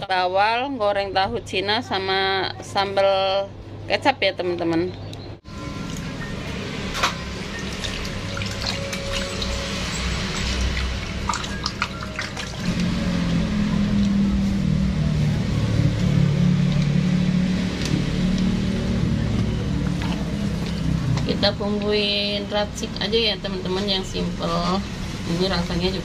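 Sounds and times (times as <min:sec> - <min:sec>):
water splashing in a sink: 0:07.0 - 0:14.1, 0:17.6 - 0:22.0.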